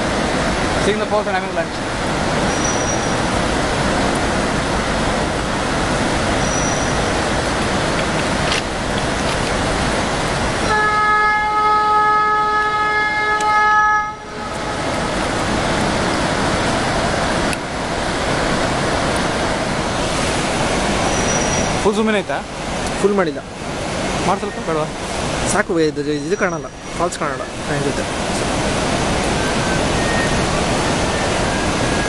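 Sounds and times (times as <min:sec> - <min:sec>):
train passing: 0:00.0 - 0:32.0
waterfall rushing: 0:00.0 - 0:32.0
train horn long note: 0:10.7 - 0:15.1.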